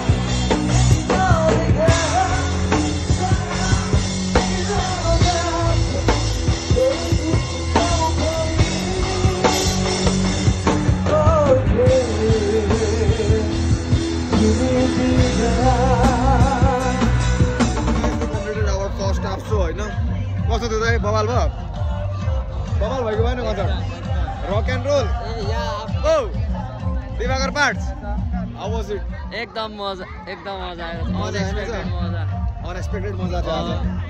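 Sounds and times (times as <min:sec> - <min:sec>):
heavy bass notes: 0:00.0 - 0:29.4
drum kit beat: 0:00.0 - 0:29.8
person singing: 0:00.7 - 0:18.3.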